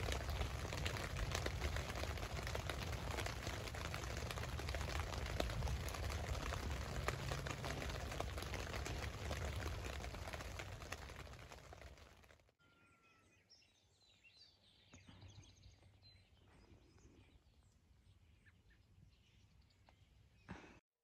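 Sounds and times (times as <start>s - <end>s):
rain falling on a tent: 0.0s - 12.4s
faint bird chirps: 12.6s - 20.6s.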